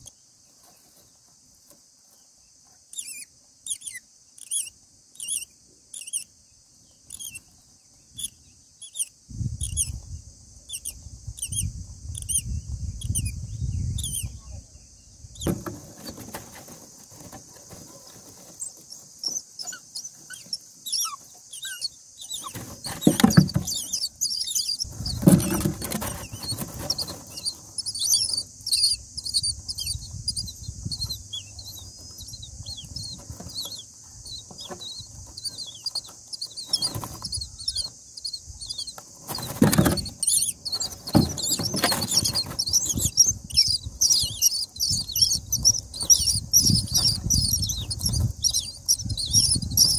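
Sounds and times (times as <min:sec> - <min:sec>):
nestlings begging with high squeaks: 0:02.9 - 0:06.3, 0:07.0 - 0:07.5, 0:08.1 - 0:10.0, 0:10.7 - 0:14.4, 0:15.4 - 0:49.9
rustling bumps of nest material: 0:15.4 - 0:38.0, 0:38.9 - 0:49.9.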